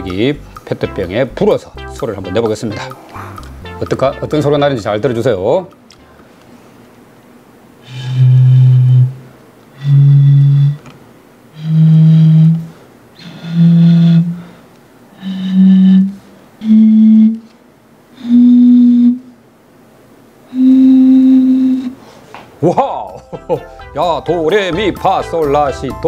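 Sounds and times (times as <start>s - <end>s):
blowing across bottle mouths: 0.0s - 0.6s, 7.8s - 10.9s, 11.5s - 17.5s, 18.1s - 19.3s, 20.5s - 22.1s.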